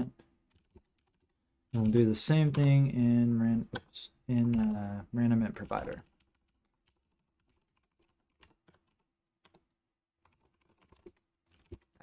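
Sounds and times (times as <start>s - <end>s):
keyboard typing clicks: 0.5s - 2.8s, 3.7s - 4.8s.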